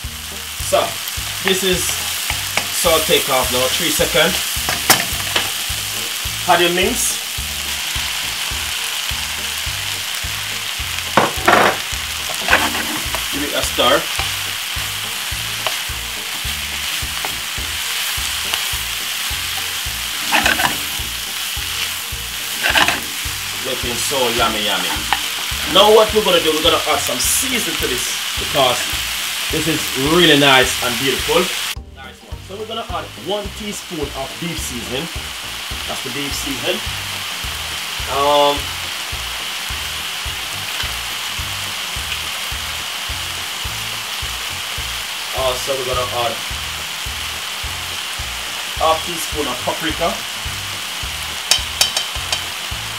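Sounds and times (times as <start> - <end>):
meat sizzling in a frying pan: 0.0 - 52.9
wooden spoon stirring: 12.3 - 13.4, 15.2 - 25.9.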